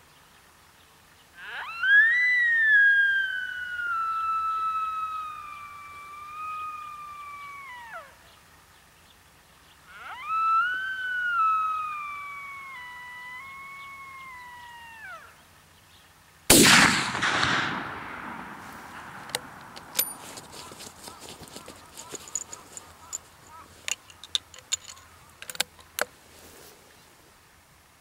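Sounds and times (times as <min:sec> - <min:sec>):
whistled deer calls: 0:01.4 - 0:08.4, 0:09.8 - 0:15.5, 0:16.5 - 0:26.1
gunshot echoing: 0:16.5 - 0:21.2.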